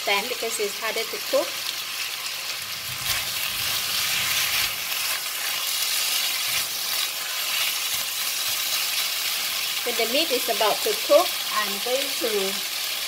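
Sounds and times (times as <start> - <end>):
food sizzling in hot oil: 0.0 - 13.0
spatula stirring in wok: 2.0 - 9.8.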